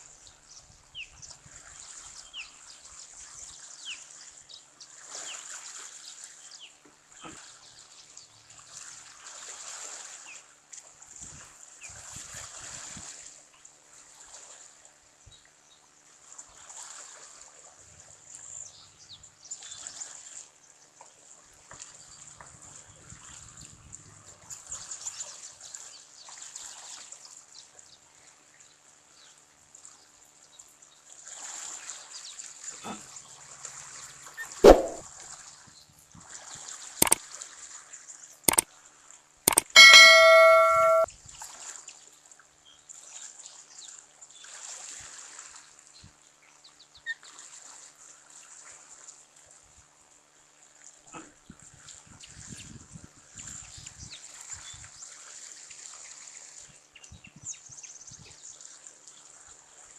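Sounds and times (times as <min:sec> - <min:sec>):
sharp mouse clicks: 0:34.6 - 0:35.0, 0:39.5 - 0:41.1
ringing bell ding: 0:39.5 - 0:41.1.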